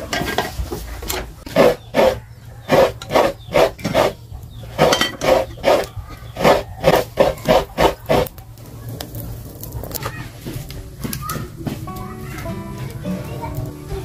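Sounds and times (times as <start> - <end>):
metal pot and lid clattering: 0.0 - 1.4, 4.8 - 5.6
firewood knocking: 0.0 - 14.0.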